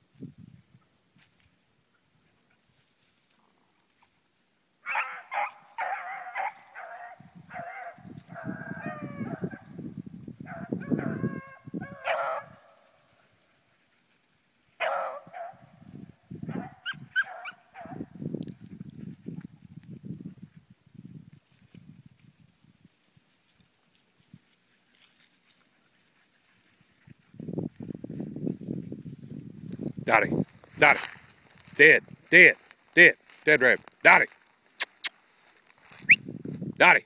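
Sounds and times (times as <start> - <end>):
beagles baying: 4.8 - 9.7, 10.5 - 13.0, 14.8 - 15.7, 16.5 - 18.0.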